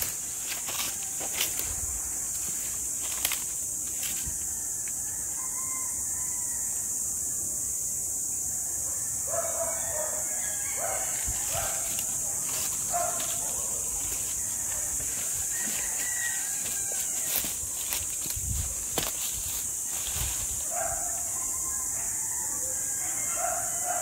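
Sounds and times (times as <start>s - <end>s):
footsteps in dry leaves: 0.0s - 4.6s, 10.2s - 21.8s
rooster crowing: 4.1s - 7.2s, 8.6s - 18.1s, 20.6s - 24.0s.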